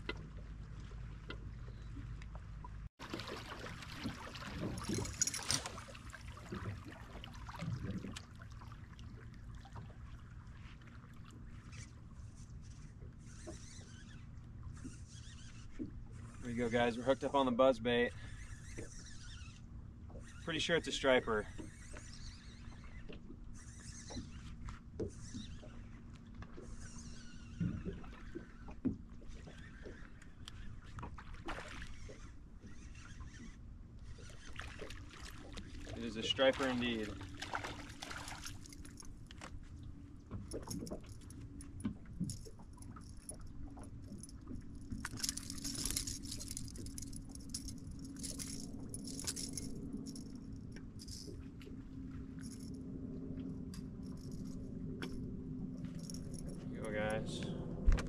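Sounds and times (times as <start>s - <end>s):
steady low hum: 0.0s - 58.0s
water lapping against hull: 0.0s - 58.0s
fishing reel whining: 4.6s - 6.0s, 11.6s - 31.1s, 31.8s - 35.0s, 40.5s - 51.5s, 52.3s - 52.8s, 53.7s - 57.4s.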